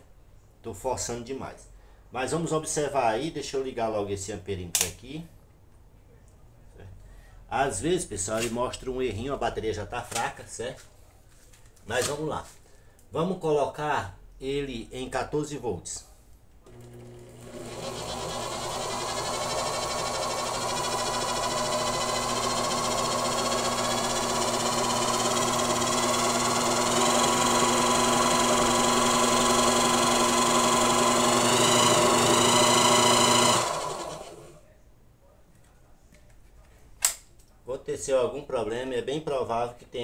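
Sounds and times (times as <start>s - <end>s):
electric motor humming and whining: 16.7s - 34.5s
motor winding down: 16.7s - 34.6s.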